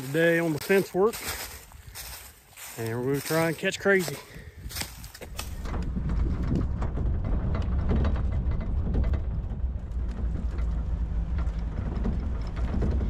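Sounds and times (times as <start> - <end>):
truck engine and tyres rumbling: 0.0 - 13.0
truck body rattling: 4.0 - 13.0.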